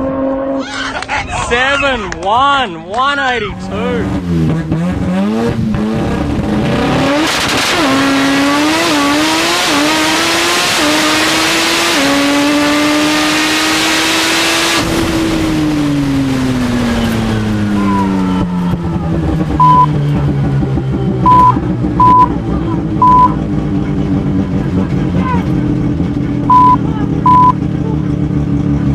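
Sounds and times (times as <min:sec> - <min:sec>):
rotary engine at full throttle: 0:03.4 - 0:28.9
short beep: 0:19.6 - 0:19.9, 0:21.2 - 0:22.3, 0:23.0 - 0:23.4, 0:26.5 - 0:27.6.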